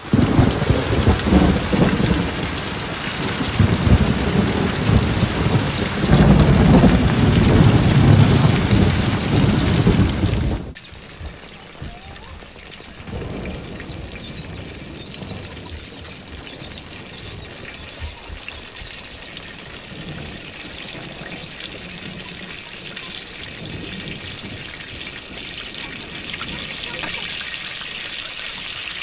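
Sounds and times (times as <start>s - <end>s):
heavy rain: 0.0s - 29.0s
food sizzling in hot oil: 10.7s - 29.0s.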